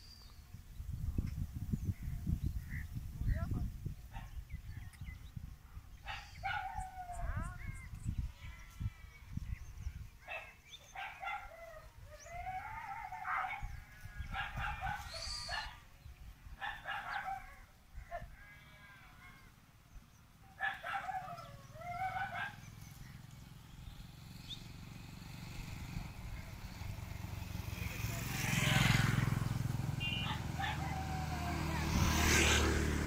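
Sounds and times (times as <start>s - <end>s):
farm animal calls: 6.0s - 19.6s, 29.9s - 32.4s.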